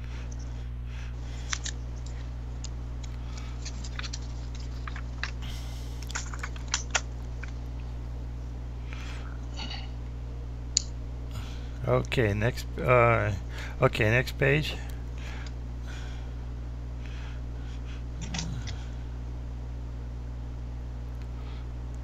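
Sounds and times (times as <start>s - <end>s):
low electrical hum: 0.0s - 22.0s
pages being turned: 3.3s - 5.4s.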